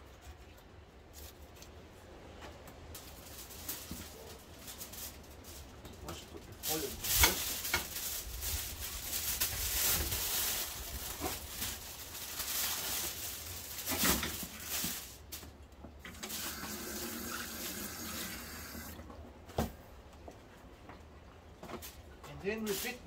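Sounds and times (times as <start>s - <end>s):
aluminium foil crinkling: 2.9s - 19.0s, 22.6s - 23.0s
water running from tap: 16.1s - 19.0s.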